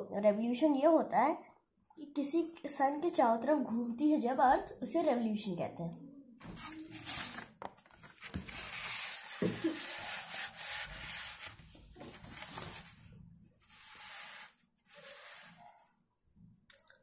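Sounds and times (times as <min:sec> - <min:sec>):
paper rustling and rubbing: 0:06.4 - 0:15.8.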